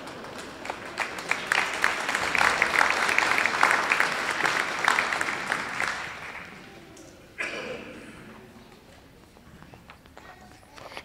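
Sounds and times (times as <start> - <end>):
audience clapping: 0.0 - 6.8.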